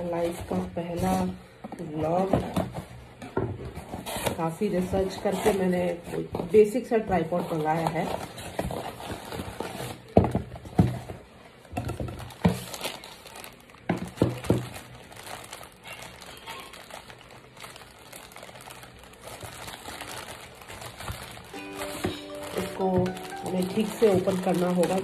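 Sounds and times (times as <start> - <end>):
plastic bag crinkling: 7.2 - 10.2, 12.0 - 25.0.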